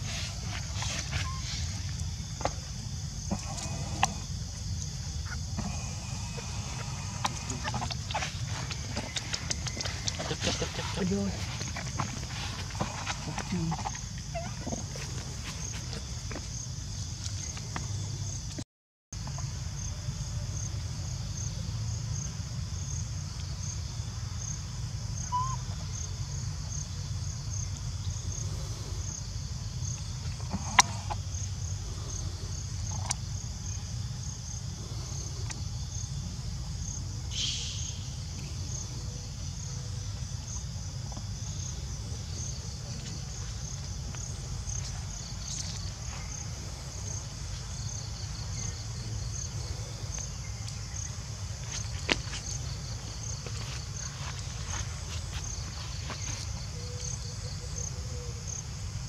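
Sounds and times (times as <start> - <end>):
high-pitched insect chorus: 0.0 - 18.5, 19.2 - 59.0
low constant rumble: 0.0 - 18.6.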